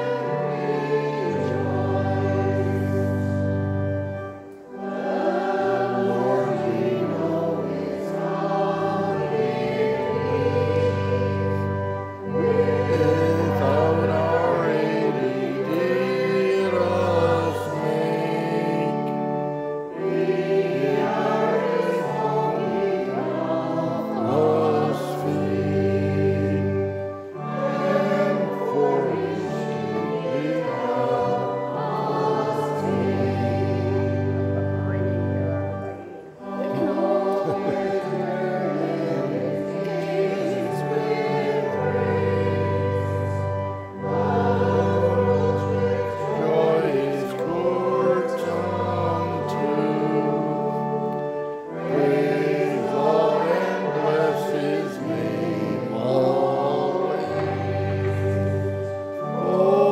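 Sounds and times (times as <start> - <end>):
church choir singing: 0.0 - 59.9
organ: 0.0 - 59.9.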